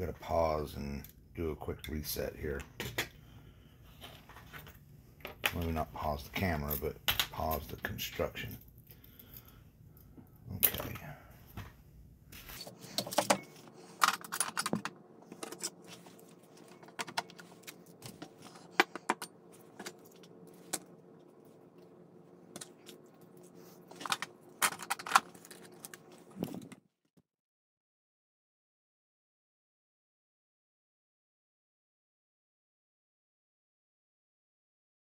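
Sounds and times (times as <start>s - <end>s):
small tools and parts clattering: 12.6s - 20.9s, 23.6s - 26.8s.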